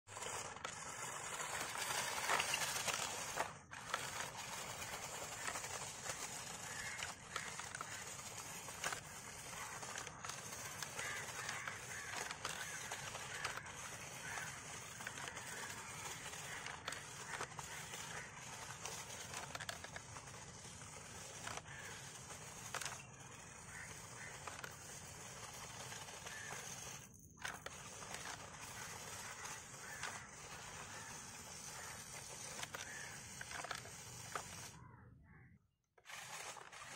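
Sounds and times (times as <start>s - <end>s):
rc car motor whir: 0.1s - 34.9s, 36.0s - 36.9s
tyres crunching on leaves: 1.8s - 8.9s, 9.6s - 19.5s, 21.6s - 22.1s, 26.3s - 27.0s, 27.7s - 30.2s.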